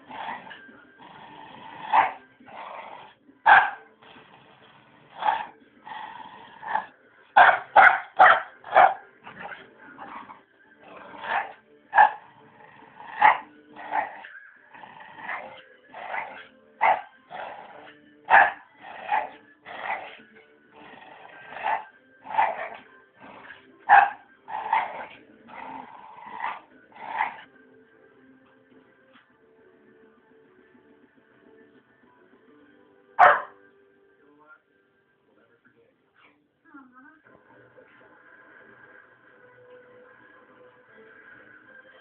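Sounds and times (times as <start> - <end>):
dog growling and whining: 0.0 - 3.2, 4.0 - 7.0, 8.6 - 27.5
dog barking: 1.9 - 2.2, 3.5 - 3.9, 7.4 - 9.6, 11.2 - 12.2, 16.1 - 17.1, 18.3 - 19.3, 23.9 - 25.1, 33.2 - 33.6.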